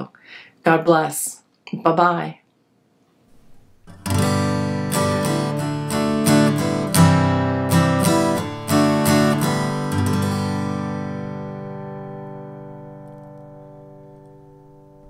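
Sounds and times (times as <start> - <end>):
strummed guitar chords: 3.9 - 15.0.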